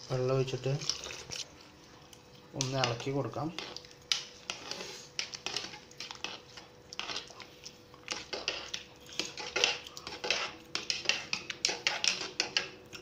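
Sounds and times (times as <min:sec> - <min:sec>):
spoon clinking and scraping pot: 0:02.6 - 0:07.4, 0:08.0 - 0:13.0
metal spoon stirring rice in pot: 0:02.6 - 0:13.0.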